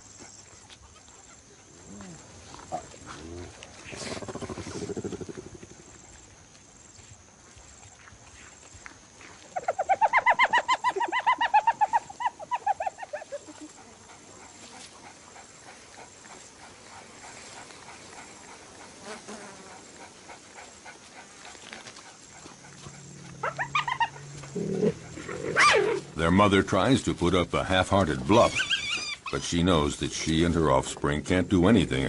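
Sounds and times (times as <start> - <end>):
animal yelping calls: 9.6 - 14.0, 22.6 - 26.1, 28.3 - 29.4.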